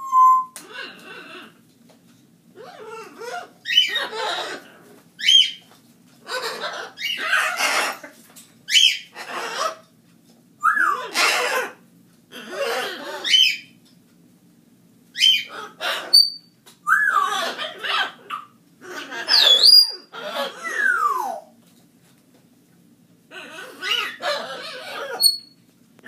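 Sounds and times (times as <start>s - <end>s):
parrot squawking and whistling: 0.0s - 1.0s, 2.6s - 4.6s, 5.2s - 5.6s, 8.7s - 9.7s, 10.6s - 11.8s, 12.5s - 13.7s, 15.2s - 21.5s, 23.4s - 25.6s.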